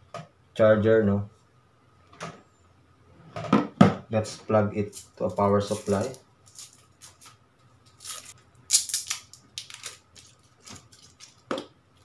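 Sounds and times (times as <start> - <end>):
cord rustling and clicking: 4.9 - 12.0.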